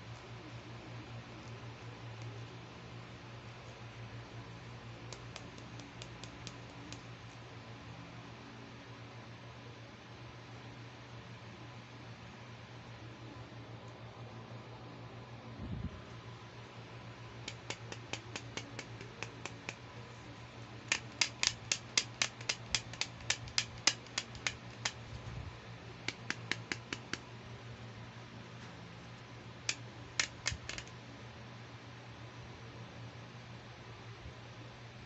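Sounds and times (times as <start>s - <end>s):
plastic hairbrush clicks: 20.9s - 25.0s, 26.1s - 27.2s, 29.7s - 30.9s.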